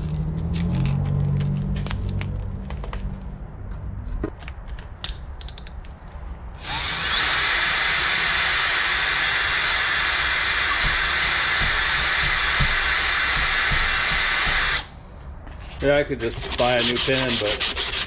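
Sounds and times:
electric drill motor whine: 0:06.6 - 0:14.9.

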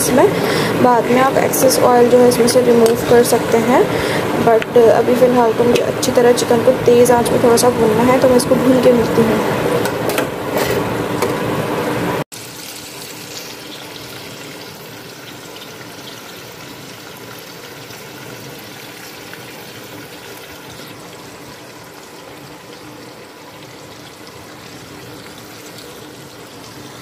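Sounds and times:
chicken frying in hot oil: 0:12.3 - 0:27.0.

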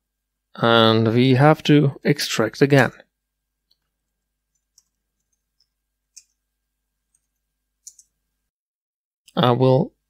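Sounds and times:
keyboard typing clicks: 0:07.2 - 0:08.1.

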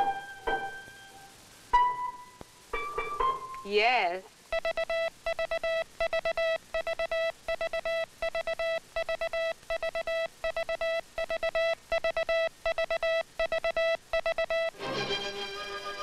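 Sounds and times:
morse code tone: 0:04.5 - 0:14.8.

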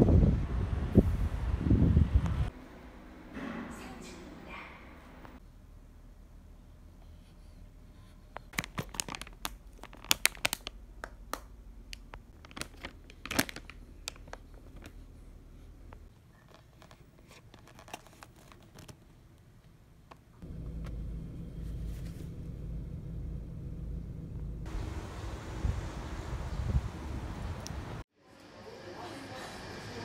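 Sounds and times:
plastic packaging crinkling: 0:08.5 - 0:10.8, 0:11.9 - 0:15.0, 0:16.4 - 0:19.0
steady low rumble: 0:20.4 - 0:28.0.

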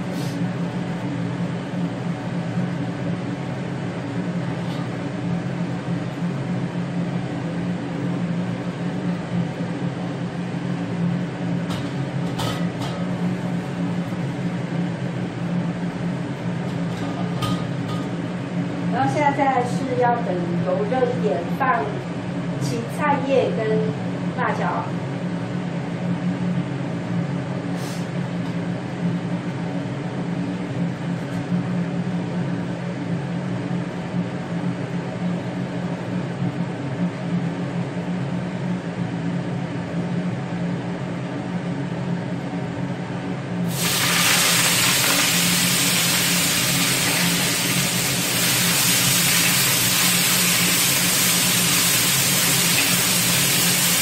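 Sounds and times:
steady hum: 0:00.0 - 0:54.0
vegetables sizzling in hot oil: 0:43.7 - 0:54.0.

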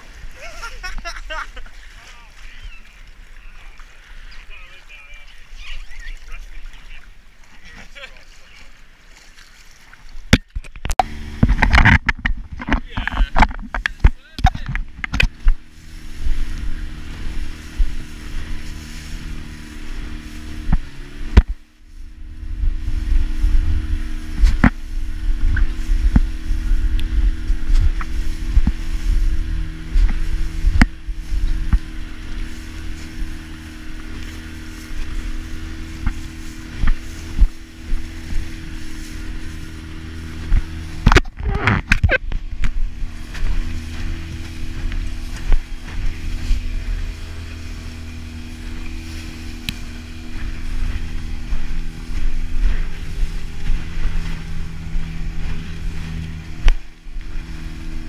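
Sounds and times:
hull slapping over waves: 0:00.0 - 0:58.0
outboard motor running: 0:00.0 - 0:58.0
wind rumbling on microphone: 0:10.1 - 0:58.0.

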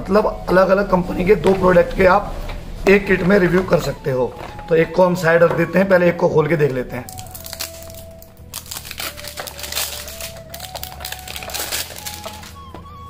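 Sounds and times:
faint background music: 0:00.0 - 0:13.0
plastic shrink-wrap crinkling: 0:06.7 - 0:13.0.

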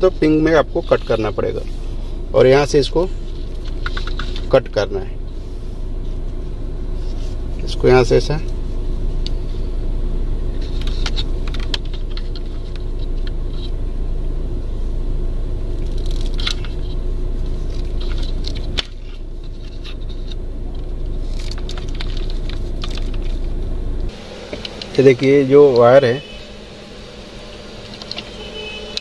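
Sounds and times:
car engine idling: 0:00.0 - 0:29.0
small clicks and rustles: 0:03.3 - 0:04.6, 0:15.8 - 0:23.6.

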